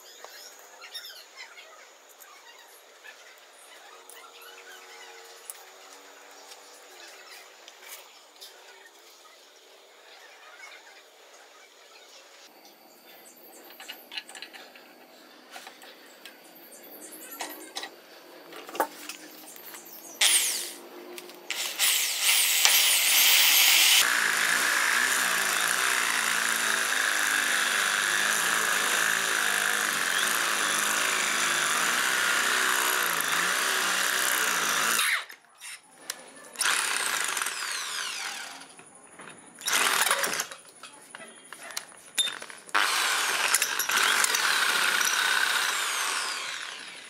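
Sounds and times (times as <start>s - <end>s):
electric drill boring into metal: 20.2s - 20.8s, 21.5s - 35.4s, 36.6s - 38.7s, 39.6s - 40.6s, 42.2s - 47.0s.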